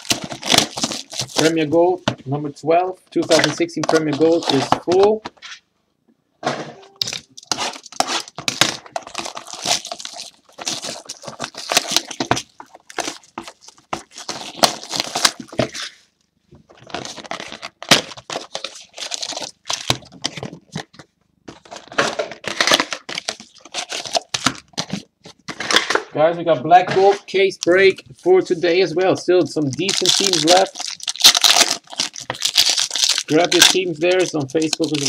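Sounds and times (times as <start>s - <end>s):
packaging tearing and crinkling: 0.0s - 1.6s, 7.0s - 16.0s, 16.8s - 20.9s, 21.5s - 26.0s, 29.6s - 35.0s.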